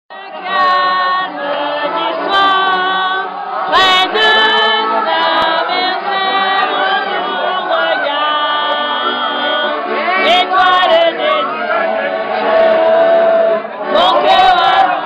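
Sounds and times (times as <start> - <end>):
group singing unaccompanied: 0.1 - 15.0.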